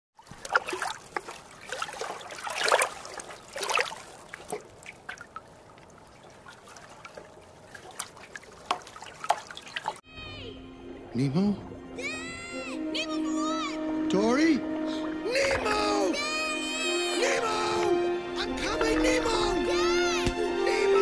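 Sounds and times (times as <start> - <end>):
liquid splashing and trickling: 0.2 - 10.0, 17.2 - 21.0
drips and clicks: 0.3 - 10.0.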